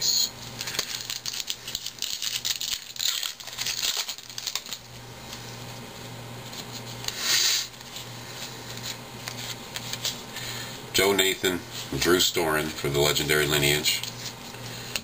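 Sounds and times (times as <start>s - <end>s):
wrapper rustling: 0.6s - 5.5s
foil card pack rustling: 0.6s - 5.7s, 6.4s - 10.7s.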